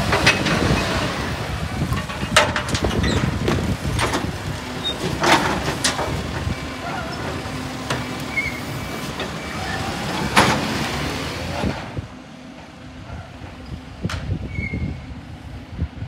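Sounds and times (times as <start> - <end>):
bin clanking against truck: 0.0 - 12.0
garbage truck running: 0.0 - 16.0.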